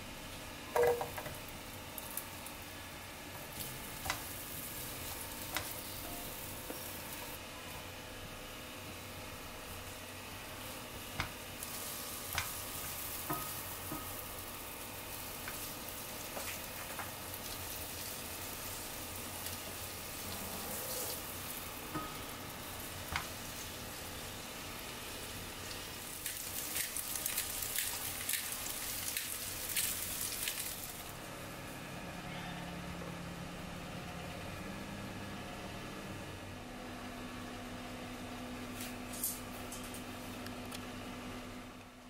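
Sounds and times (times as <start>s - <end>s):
spatula tapping on pan: 0.8s - 1.4s, 13.3s - 14.1s
vegetables sizzling in frying pan: 3.4s - 7.4s, 10.6s - 31.1s.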